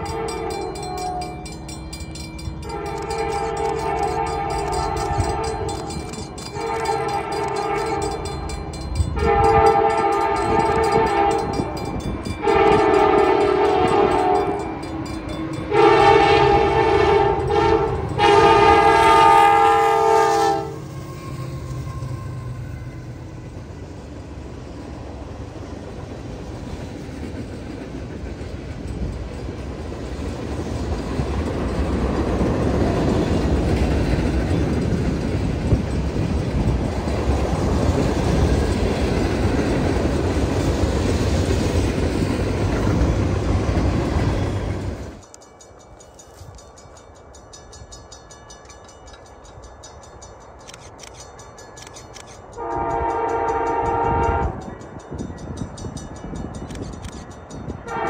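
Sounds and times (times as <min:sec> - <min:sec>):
locomotive air horn blasts: 0:00.0 - 0:01.3, 0:02.6 - 0:08.3, 0:09.1 - 0:11.8, 0:12.4 - 0:14.8, 0:15.6 - 0:22.8, 0:52.6 - 0:54.7
train rolling past: 0:00.0 - 0:58.0.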